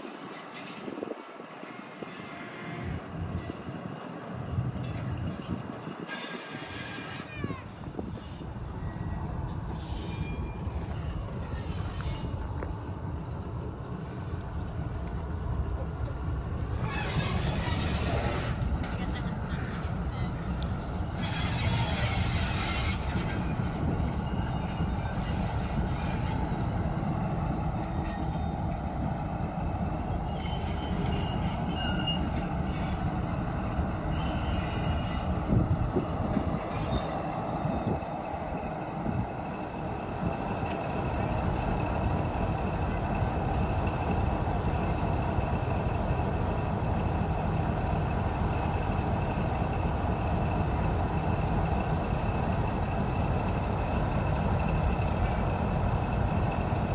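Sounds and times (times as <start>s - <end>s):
train wheels squealing: 0.0s - 19.2s, 20.1s - 39.3s
train rolling rumble: 0.0s - 56.9s.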